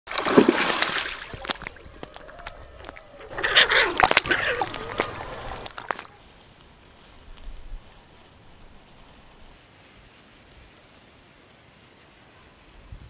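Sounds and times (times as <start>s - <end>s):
fish thrashing and splashing: 0.1s - 6.2s.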